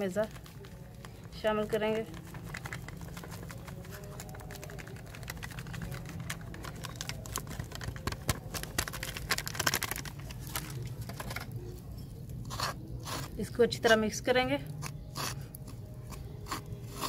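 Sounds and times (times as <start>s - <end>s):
foil packet crinkling: 0.0s - 11.7s.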